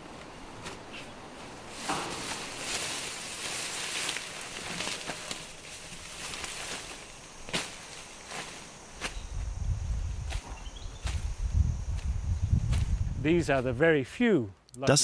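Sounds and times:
leafy branches rustling: 0.0s - 13.8s
branches snapping: 1.8s - 9.2s.

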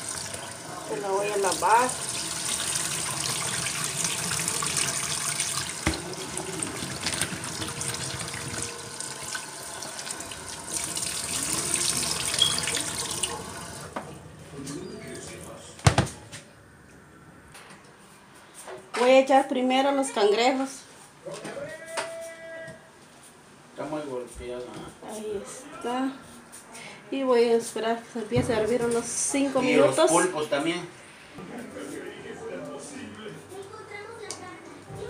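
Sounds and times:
vegetables rinsed by hand: 0.0s - 13.9s
tap water running into bowl: 0.0s - 14.0s.

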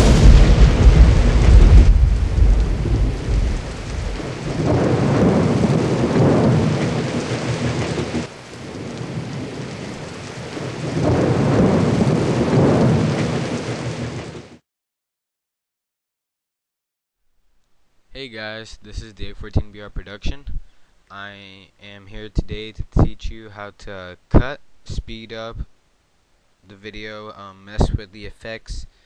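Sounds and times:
thunder rumbling: 0.0s - 14.5s
rain hissing: 0.0s - 14.6s.

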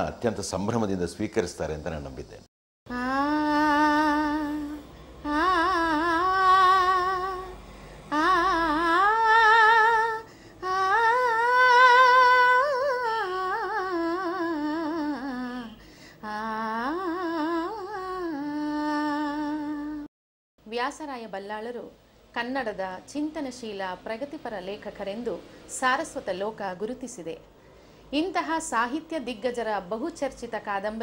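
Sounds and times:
woman singing unaccompanied: 2.9s - 20.1s.

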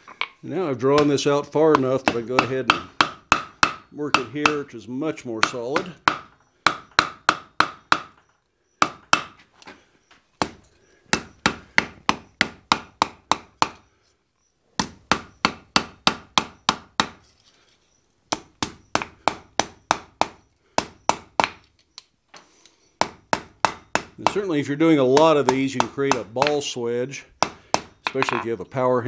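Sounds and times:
hammer striking steel on anvil: 28.0s - 28.5s.

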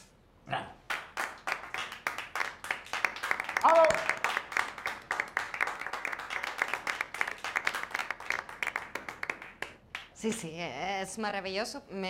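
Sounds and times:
small group applauding: 0.8s - 10.5s.

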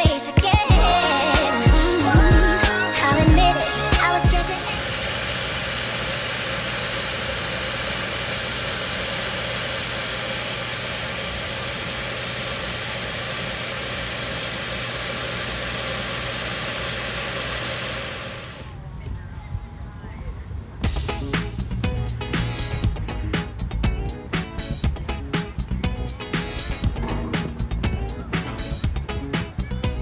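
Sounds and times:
machine hiss and hum: 0.7s - 18.8s, 20.8s - 30.0s.

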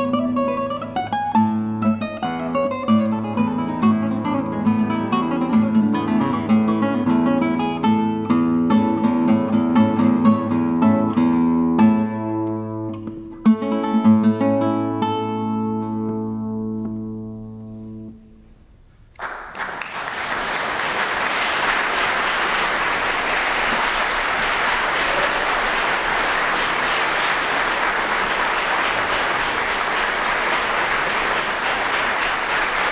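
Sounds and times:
audience applause: 19.2s - 32.9s.

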